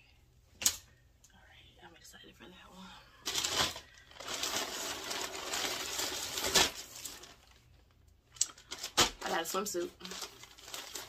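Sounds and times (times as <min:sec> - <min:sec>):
plastic bag rustling and crinkling: 0:03.2 - 0:11.0.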